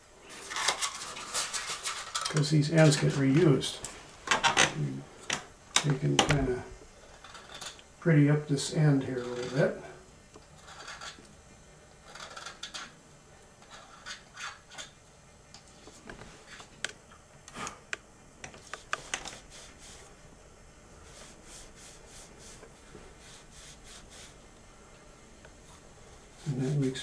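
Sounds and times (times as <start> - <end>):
hand rubbing strokes: 18.7 - 20.3, 20.9 - 24.5, 25.6 - 27.0.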